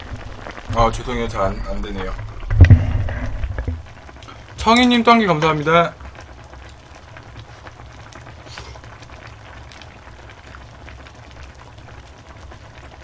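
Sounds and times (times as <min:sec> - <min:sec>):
stew bubbling in a pot: 0:00.0 - 0:13.0
breathy hiss: 0:08.4 - 0:08.9.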